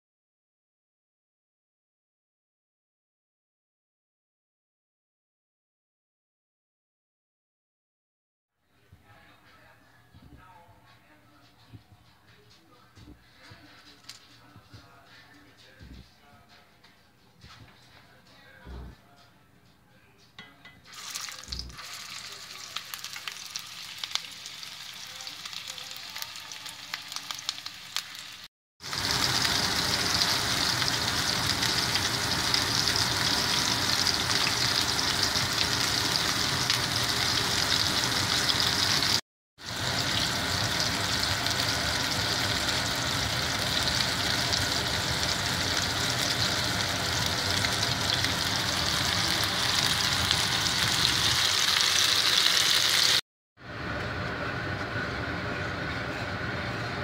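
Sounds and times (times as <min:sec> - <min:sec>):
meatballs sizzling in oil: 0:20.9 - 0:53.2.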